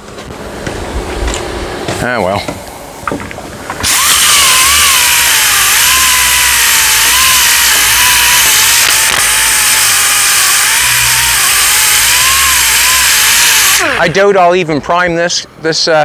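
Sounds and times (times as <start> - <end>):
orbital sander rasping: 3.8 - 14.2.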